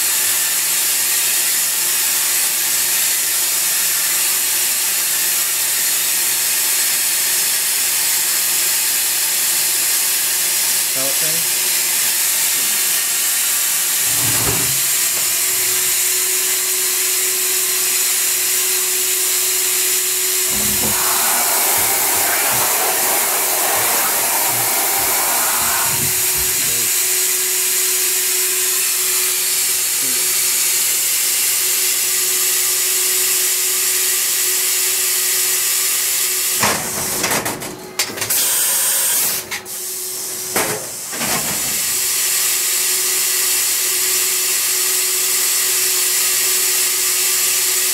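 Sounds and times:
rough machining noise: 19.7s - 27.4s
machine hum: 19.9s - 27.6s
coolant spraying hiss: 20.4s - 27.1s.

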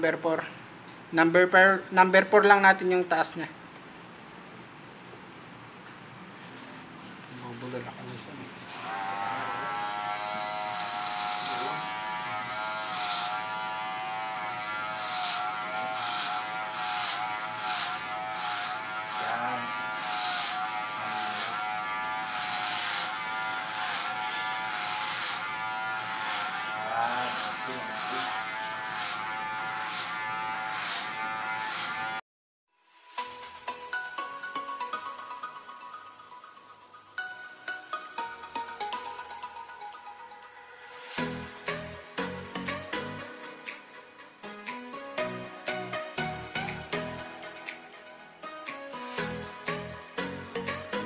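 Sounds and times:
hair clipper buzzing: 8.7s - 32.2s, 41.0s - 41.9s, 49.0s - 49.6s
clipper hissing through hair: 16.0s - 19.4s.

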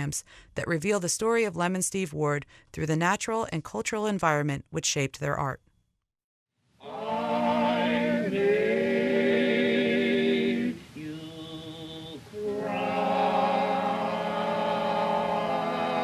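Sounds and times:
choir-like singing with music: 6.8s - 16.0s.

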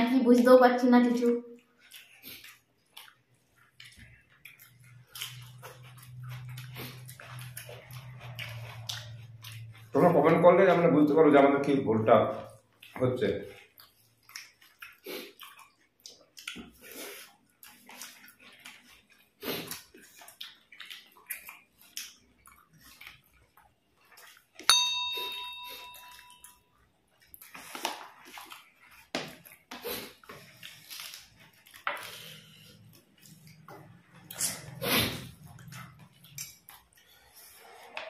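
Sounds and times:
hands mixing wet food: 0.0s - 38.0s
eating noises: 1.2s - 24.7s, 26.8s - 38.0s
bell-like chime: 24.7s - 26.6s.

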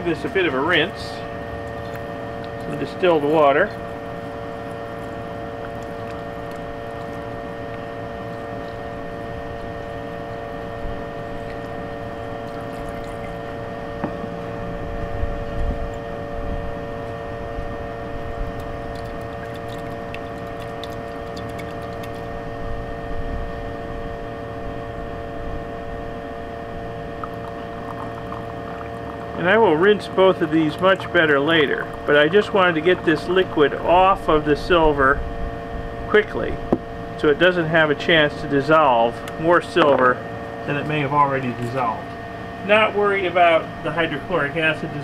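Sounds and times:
steady hum with tones: 0.0s - 45.0s
liquid pouring between beakers: 1.7s - 13.6s, 18.5s - 22.3s, 27.1s - 34.4s.

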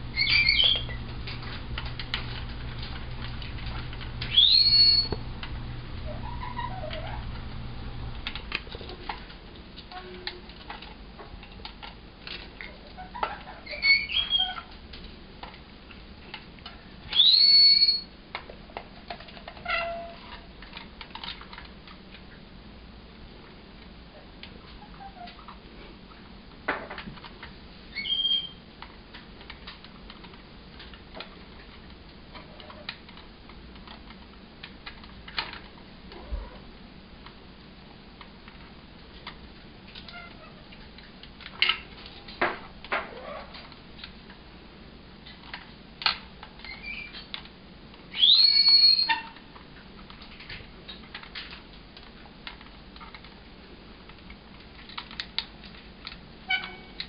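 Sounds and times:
parrot chirp: 0.2s - 1.0s, 4.3s - 5.2s, 13.0s - 14.6s, 17.1s - 18.1s, 27.9s - 28.6s, 48.1s - 49.3s
parrot whistled call: 0.2s - 1.0s, 4.3s - 5.2s, 17.1s - 18.1s, 27.9s - 28.6s, 48.1s - 49.3s.

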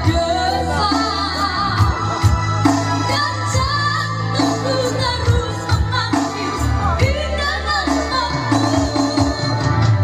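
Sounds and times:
electronic keyboard bass notes: 0.0s - 10.0s
girl singing through microphone: 3.0s - 9.8s.

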